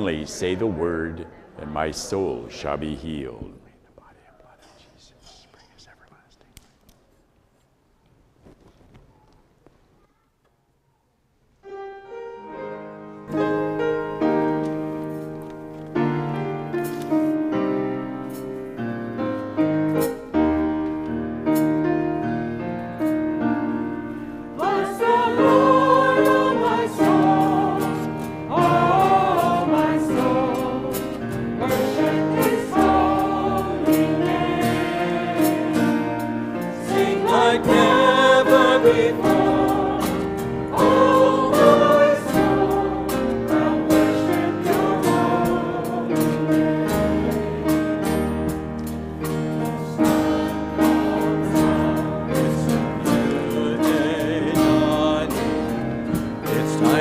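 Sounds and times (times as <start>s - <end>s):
instrumental hymn music: 11.5s - 57.0s
people singing: 24.4s - 48.6s, 49.6s - 57.0s.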